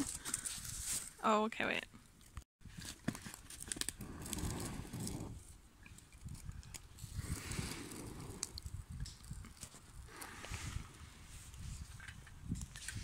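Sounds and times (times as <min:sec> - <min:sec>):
twigs crackling and crunching: 0:02.1 - 0:04.7, 0:05.4 - 0:10.4.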